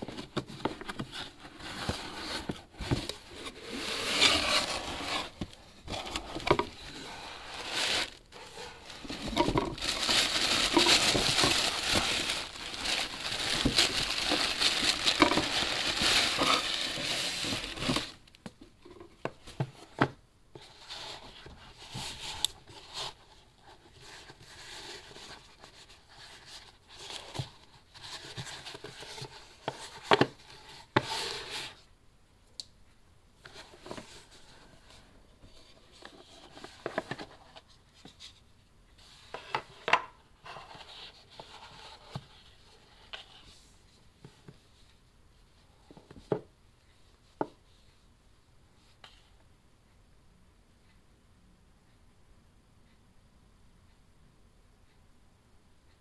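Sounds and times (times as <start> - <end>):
tissue paper rustling: 0.0 - 18.2
cardboard box being opened: 0.1 - 18.2.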